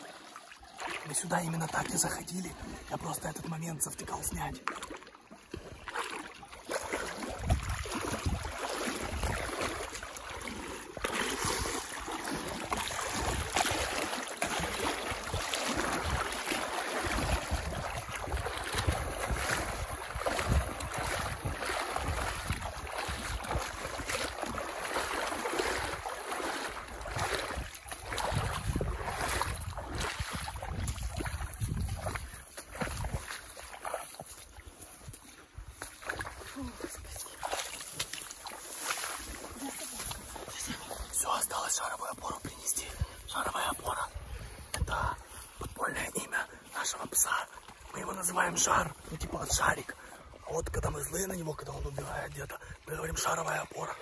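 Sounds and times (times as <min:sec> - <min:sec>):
boots wading through water: 0:00.0 - 0:54.0
wind buffeting microphone: 0:07.3 - 0:09.6, 0:17.0 - 0:24.3, 0:27.0 - 0:33.3.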